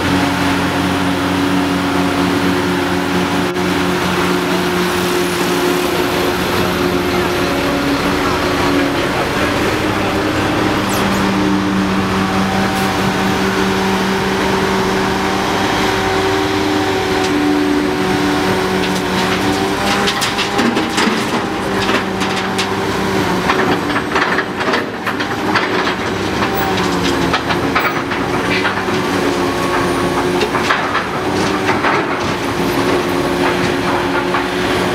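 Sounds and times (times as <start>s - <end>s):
diesel engines humming: 0.0s - 34.9s
metallic clanks and rattles: 18.7s - 34.6s.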